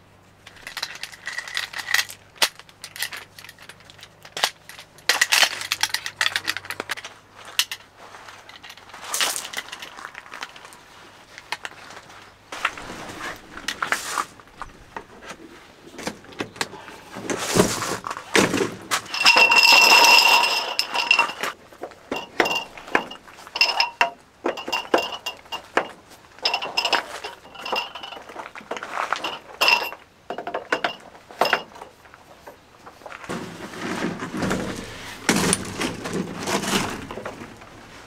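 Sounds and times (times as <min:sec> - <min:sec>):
rustling and ringing: 0:16.8 - 0:38.0
metallic clinks and knocks: 0:18.9 - 0:32.7.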